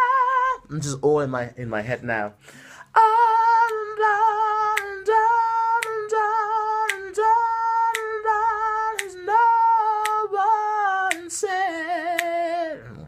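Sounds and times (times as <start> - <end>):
man singing unaccompanied: 0.0 - 13.0
finger snapping: 3.6 - 3.8, 4.7 - 5.0, 5.8 - 6.0, 6.8 - 7.1, 7.9 - 8.2, 8.9 - 9.2, 10.0 - 10.2, 11.1 - 11.3, 12.1 - 12.4.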